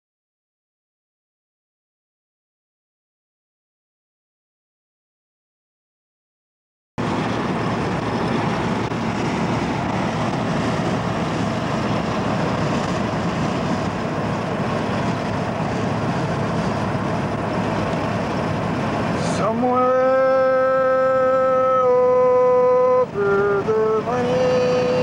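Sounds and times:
vehicle road and engine noise: 7.0 - 25.0.

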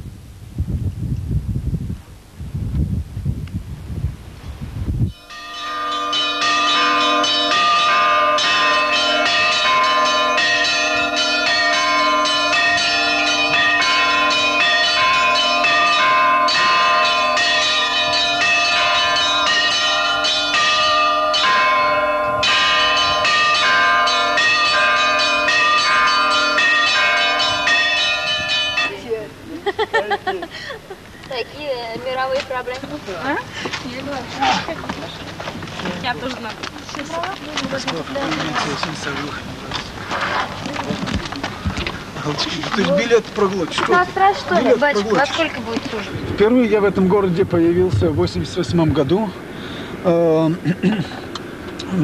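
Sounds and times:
low bell tolling: 5.1 - 29.3
church bells pealing: 5.1 - 29.4.

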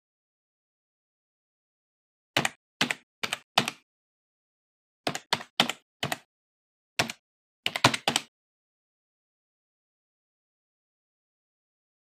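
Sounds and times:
keyboard keystrokes: 2.4 - 3.8, 5.1 - 6.3, 7.0 - 8.3.

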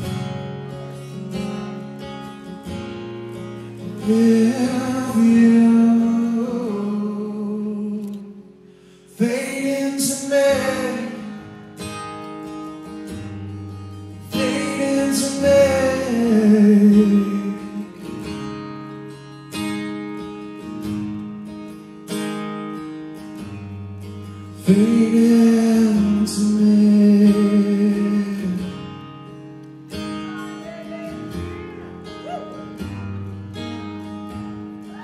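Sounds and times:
acoustic guitar: 0.0 - 35.0
man singing: 3.8 - 8.4, 9.2 - 11.5, 14.2 - 18.0, 24.6 - 29.0.

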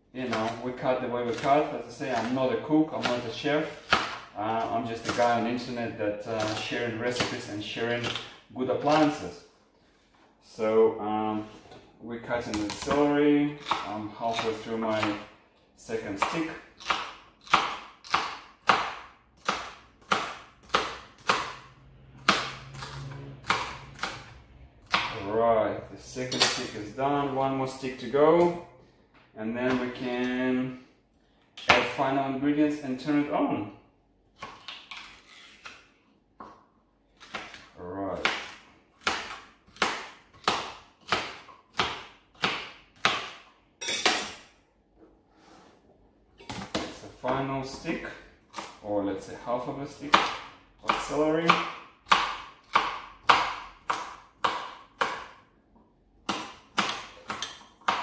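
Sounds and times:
knife chopping celery on board: 0.2 - 5.7, 6.3 - 9.2, 12.5 - 15.3, 15.9 - 21.6, 22.2 - 25.3, 37.2 - 43.5, 50.0 - 55.4, 56.2 - 58.0.

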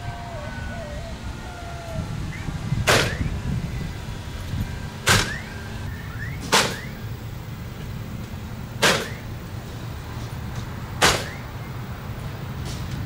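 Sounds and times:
steady low rumble: 0.0 - 12.6
nail gun shots: 2.9 - 3.2, 5.0 - 5.5, 6.4 - 7.0, 8.8 - 9.3, 11.0 - 11.4.

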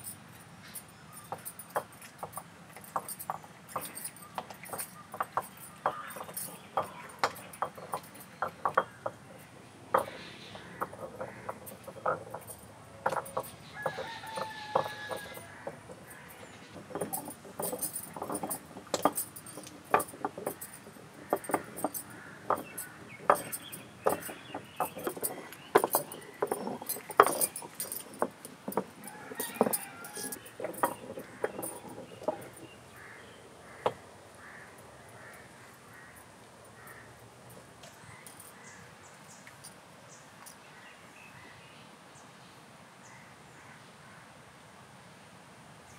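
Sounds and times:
grinding stone knocking and scraping: 1.2 - 34.6.

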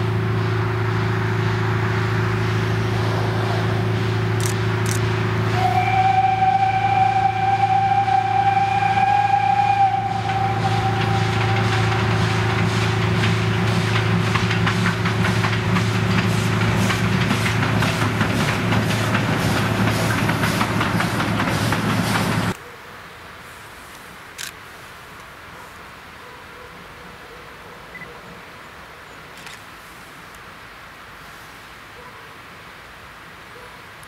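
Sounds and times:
steam locomotive exhaust beats: 0.0 - 22.6
steam locomotive whistle: 5.4 - 13.8.

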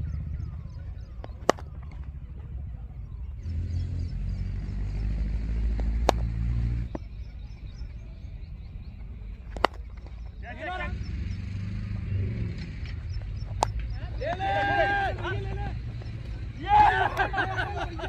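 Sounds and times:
engine running at low revs: 0.0 - 18.0
sharp cracks: 1.2 - 2.0, 5.7 - 6.5.

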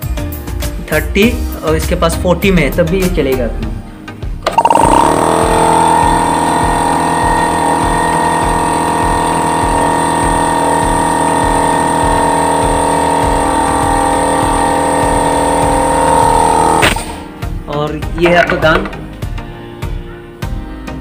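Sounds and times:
air compressor running: 4.4 - 17.4.

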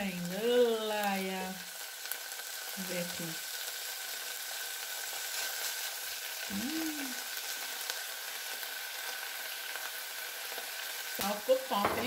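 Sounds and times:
ground beef sizzling: 0.0 - 12.0
person humming: 6.5 - 7.3.

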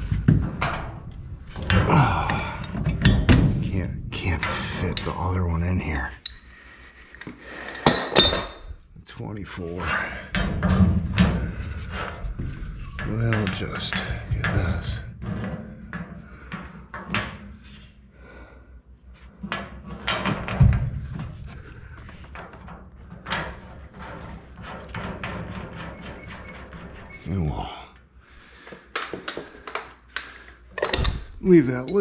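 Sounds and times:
steel pipe and tools knocking: 10.2 - 17.4, 19.4 - 27.2.

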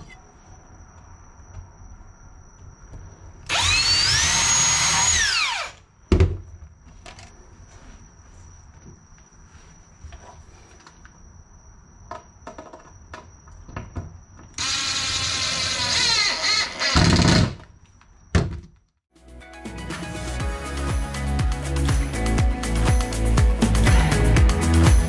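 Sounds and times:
cordless drill drilling wood: 3.5 - 5.8, 14.6 - 17.6.

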